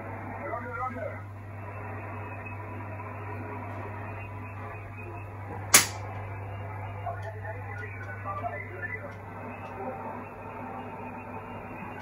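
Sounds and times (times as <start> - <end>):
low hum: 0.0 - 12.0
radio static hiss: 0.0 - 12.0
sharp click: 5.7 - 6.0.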